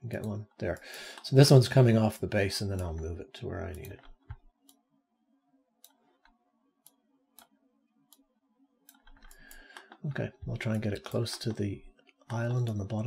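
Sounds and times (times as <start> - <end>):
computer mouse clicks: 8.8 - 10.0, 10.6 - 12.8.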